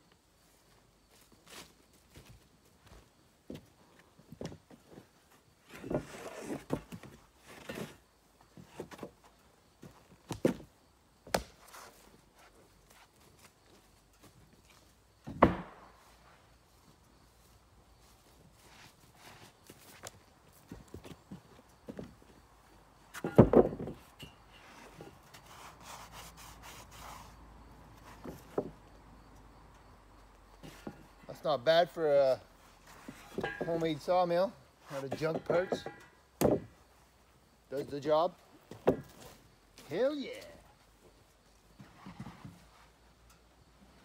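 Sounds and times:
wood scraping against wood: 3.5 - 9.3, 23.1 - 28.8, 30.6 - 31.4, 32.6 - 36.8, 41.8 - 43.0
heavy wooden thuds: 15.2 - 15.9, 23.1 - 24.1, 35.2 - 36.8, 38.7 - 39.3
wooden boards knocking: 15.3 - 15.8, 23.2 - 24.0, 35.1 - 36.8, 38.7 - 39.2.

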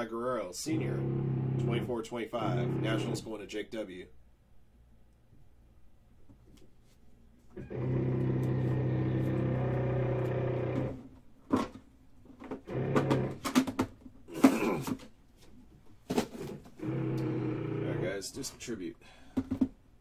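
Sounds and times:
steady machine hum: 0.4 - 3.4, 7.5 - 11.1, 12.6 - 13.6, 16.7 - 18.4.

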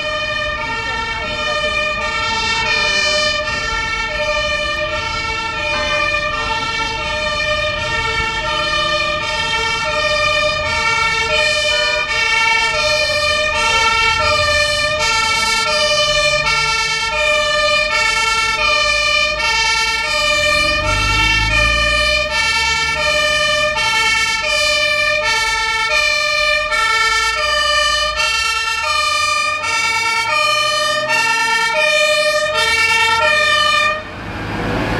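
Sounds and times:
two-tone fire engine siren: 0.0 - 34.9
car passing with low rumble: 3.1 - 26.7.

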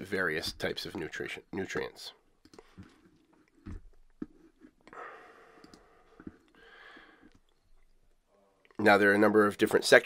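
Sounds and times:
faint breathing: 4.9 - 7.5.

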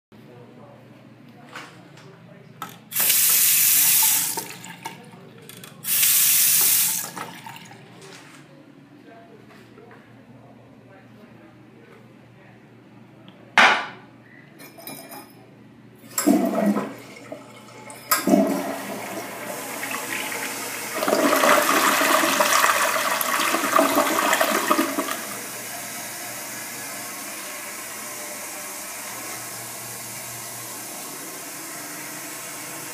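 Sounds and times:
water refilling hiss: 2.9 - 4.5, 5.9 - 7.2
water rushing through toilet bowl: 3.0 - 5.0, 5.9 - 7.9, 16.1 - 32.9
toilet flush lever click: 16.1 - 17.2, 17.9 - 19.2.

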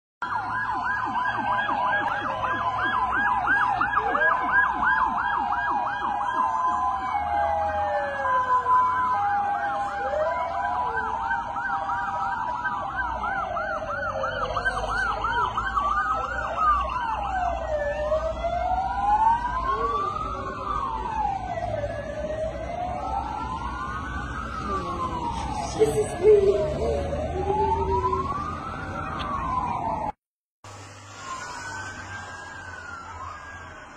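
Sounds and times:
emergency vehicle sirens: 0.2 - 33.9.

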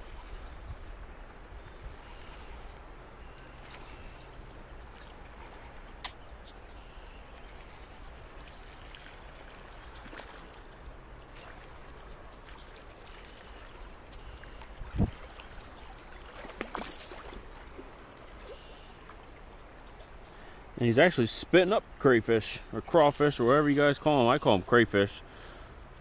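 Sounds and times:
small splashes and ticks: 1.6 - 6.2, 7.3 - 20.8, 22.5 - 25.8
river water rushing: 7.4 - 21.0
fish thrashing in water: 11.3 - 18.6.

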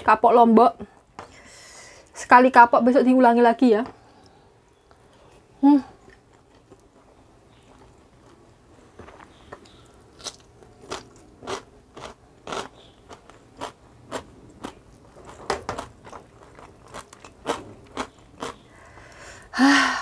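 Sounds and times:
person chewing crunchy food: 4.2 - 19.3.

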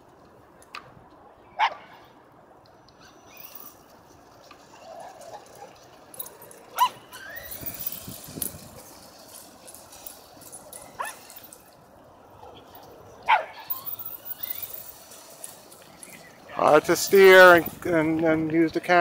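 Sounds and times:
dog barking: 1.6 - 2.0, 6.8 - 7.0, 13.3 - 13.7
rustling: 2.9 - 18.1.

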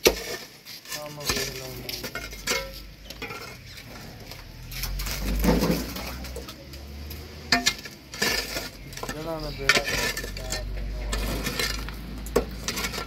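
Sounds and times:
hoe striking soil and stone: 0.0 - 3.6
tree roots tearing out: 4.5 - 7.4.

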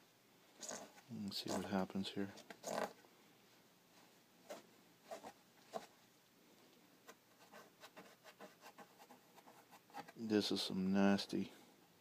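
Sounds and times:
fingers scratching metal plate: 2.5 - 3.0.

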